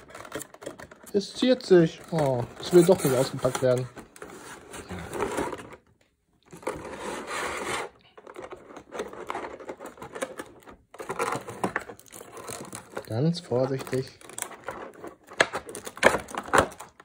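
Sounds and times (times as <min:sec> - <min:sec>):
plastic packaging crackling: 0:00.0 - 0:04.2, 0:08.8 - 0:17.0.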